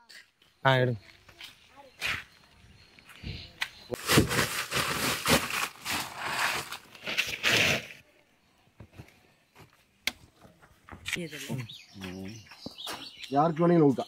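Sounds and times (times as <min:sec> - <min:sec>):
plastic sack rustling: 0:04.0 - 0:08.0.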